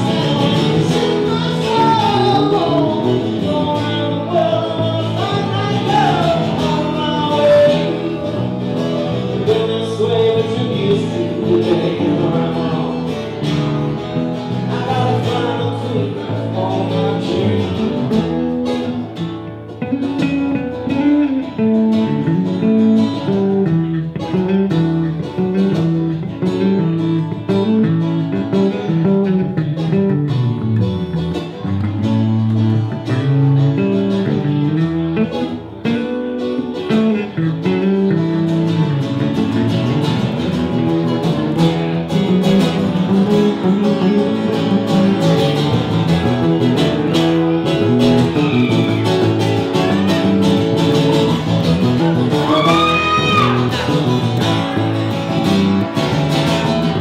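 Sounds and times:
man singing: 0:00.0 - 0:18.6, 0:52.2 - 0:55.4
acoustic guitar: 0:00.0 - 0:57.0
electric bass line: 0:00.0 - 0:57.0.

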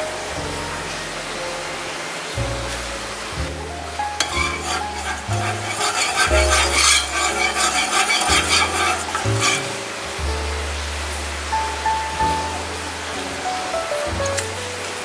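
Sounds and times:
metal ladle scraping a pan: 0:04.1 - 0:10.1.

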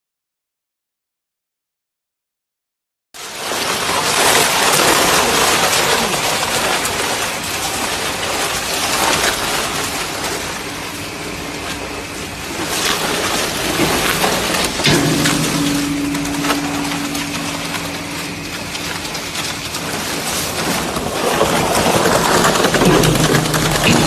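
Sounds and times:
shredder crackling plastic: 0:03.2 - 0:15.0, 0:18.6 - 0:24.0
steady machine hum: 0:09.5 - 0:24.0.

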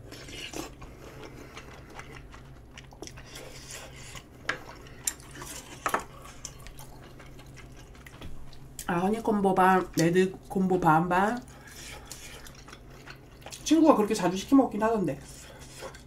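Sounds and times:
person chewing food: 0:00.0 - 0:08.9, 0:11.4 - 0:13.6, 0:15.2 - 0:16.0
low steady hum: 0:00.0 - 0:16.0.

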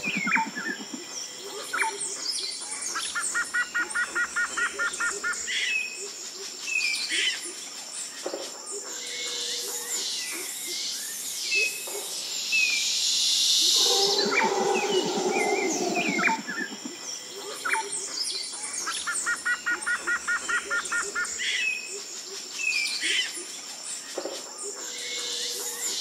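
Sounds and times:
birds chirping and whistling: 0:00.0 - 0:00.8, 0:12.6 - 0:16.8.

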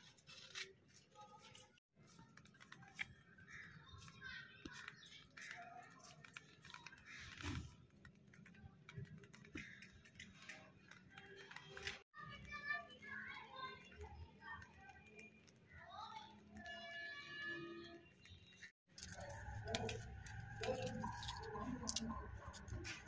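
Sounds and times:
small clicks and taps: 0:02.1 - 0:17.2.

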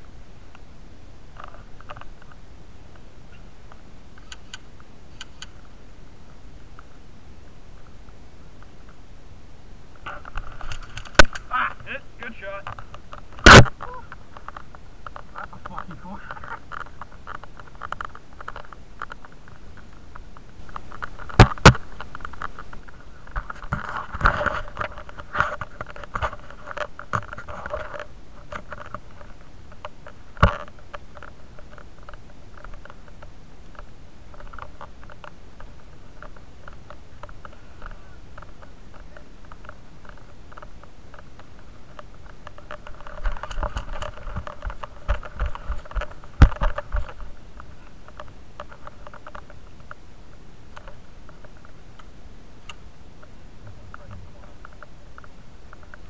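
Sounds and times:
camera handling rustling: 0:10.1 - 0:11.5, 0:12.7 - 0:19.9, 0:39.5 - 0:47.3.

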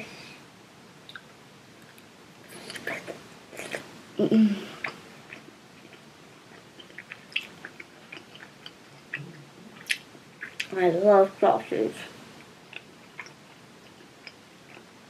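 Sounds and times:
child chewing with mouth clicks: 0:01.0 - 0:03.9, 0:04.7 - 0:10.8, 0:12.3 - 0:15.0
child humming: 0:04.2 - 0:04.8.

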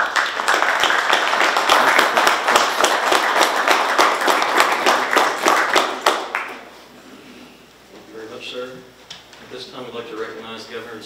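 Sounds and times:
audience applauding: 0:00.0 - 0:06.7.

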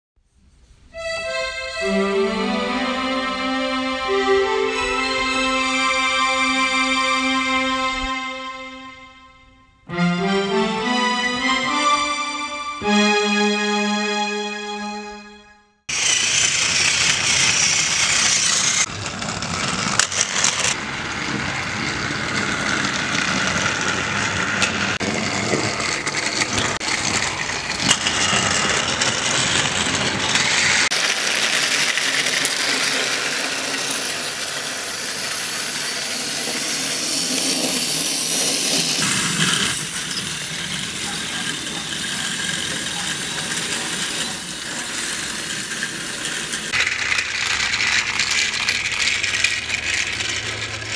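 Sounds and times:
toy train motor whirring: 0:15.9 - 0:50.9
wheels rattling over track joints: 0:15.9 - 0:50.9.

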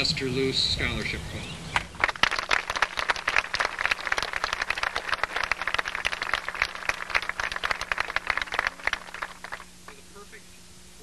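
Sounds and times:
crowd applauding: 0:01.8 - 0:09.7.

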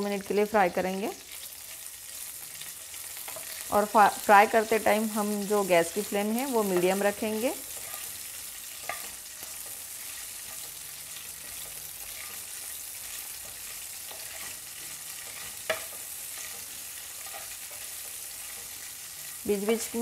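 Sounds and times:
chillies sizzling in oil: 0:00.0 - 0:20.0
wooden spatula stirring: 0:07.6 - 0:19.0.

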